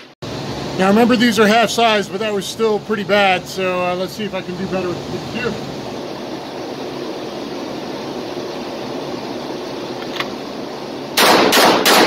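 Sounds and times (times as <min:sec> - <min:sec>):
pistol shots: 0:11.2 - 0:12.0.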